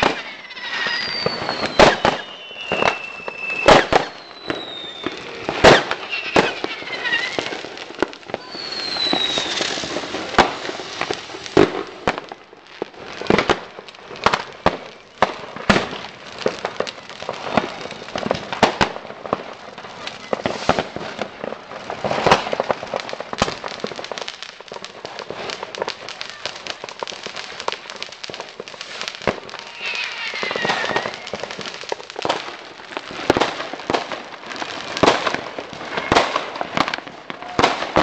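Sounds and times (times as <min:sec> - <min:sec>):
fireworks and firecrackers banging: 0:00.0 - 0:38.0
whistles falling in pitch: 0:00.1 - 0:05.2, 0:08.4 - 0:09.6.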